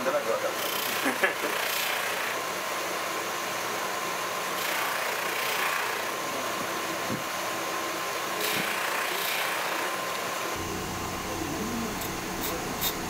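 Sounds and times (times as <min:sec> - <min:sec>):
buffing wheel hissing: 0:10.6 - 0:13.0.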